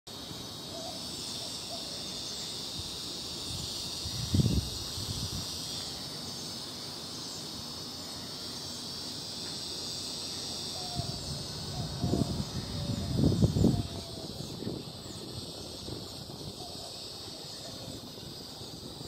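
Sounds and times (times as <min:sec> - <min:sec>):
cicada high-pitched buzz: 0:00.1 - 0:19.0.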